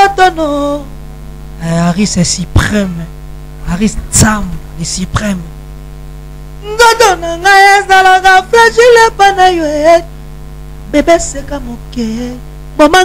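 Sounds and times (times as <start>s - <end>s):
man singing a cappella: 0.0s - 0.9s, 1.6s - 3.1s, 3.7s - 5.5s, 6.6s - 10.1s, 10.8s - 13.0s
electrical hum: 0.0s - 13.0s.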